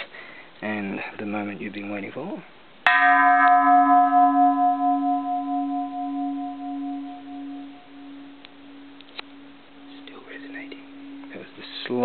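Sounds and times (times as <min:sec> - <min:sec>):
temple bell ringing: 0:02.9 - 0:12.0.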